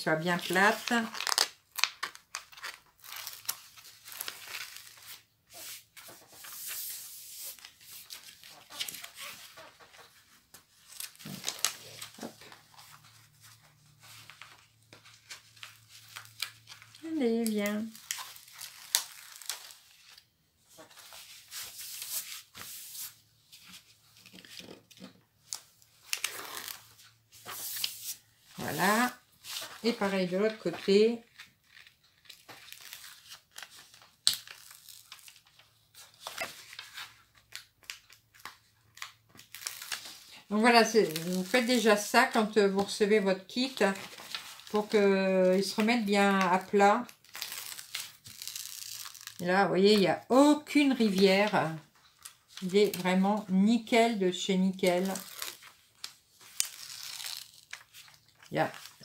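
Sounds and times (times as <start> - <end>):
plastic film peeling crackles: 0.4 - 20.2, 23.6 - 29.9, 30.8 - 41.9, 43.8 - 49.5, 54.7 - 59.0.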